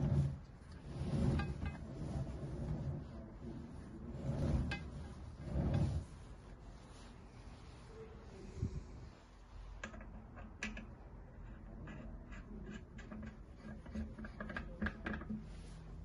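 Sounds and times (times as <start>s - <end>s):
turntable rumbling: 0.0s - 6.7s.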